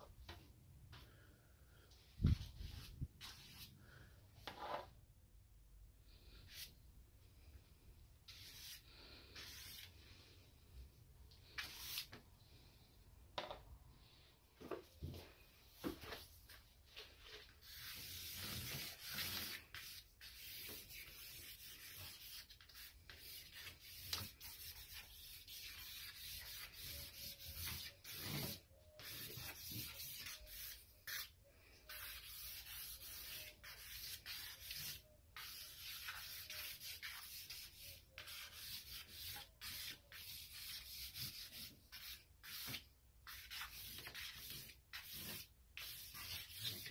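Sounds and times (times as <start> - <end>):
charcoal scraping on paper: 8.3 - 9.9, 17.4 - 46.9.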